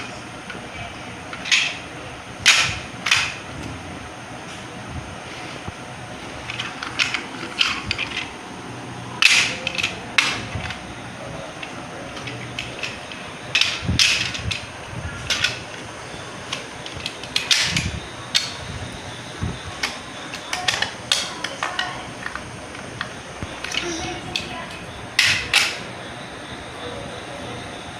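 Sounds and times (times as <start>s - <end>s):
steady background hiss: 0.0s - 27.9s
plastic toy cars clacking: 6.5s - 8.3s, 9.2s - 10.8s, 11.6s - 14.7s, 15.3s - 15.8s, 16.5s - 18.6s, 19.8s - 25.8s.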